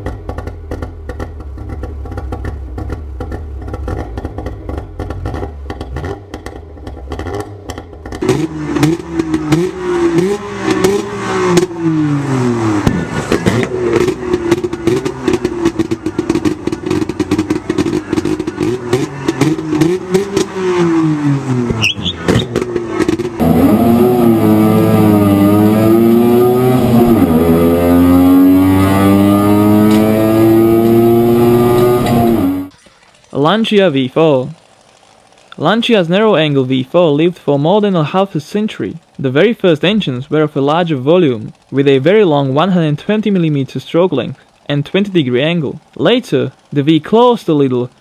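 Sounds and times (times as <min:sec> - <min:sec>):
sharp engine crackles: 0:00.0 - 0:48.0
two-stroke engine revving: 0:00.0 - 0:48.0.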